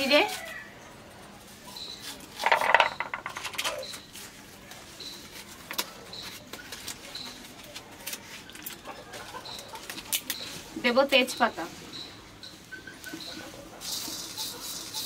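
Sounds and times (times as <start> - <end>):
faint high chirp: 1.7 - 2.2, 6.0 - 7.5, 11.2 - 13.4
dried spices clicking and rattling: 2.2 - 4.1.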